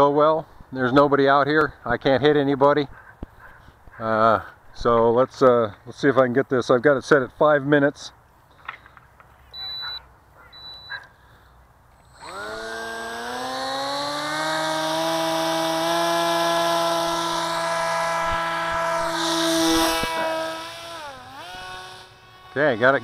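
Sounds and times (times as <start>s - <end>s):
electric motor and propeller whine: 12.0s - 23.0s.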